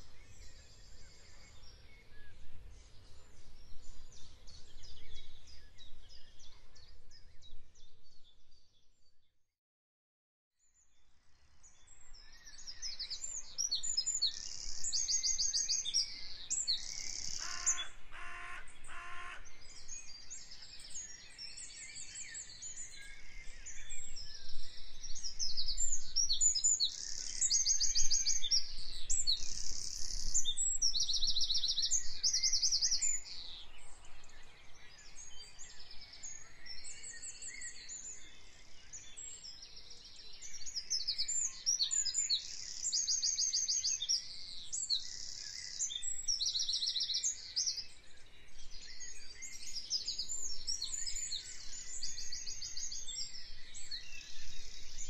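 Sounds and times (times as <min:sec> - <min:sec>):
songbirds trilling and chirping: 0:00.0 - 0:09.1, 0:10.6 - 0:55.0
low pulsing bird call: 0:17.2 - 0:19.7.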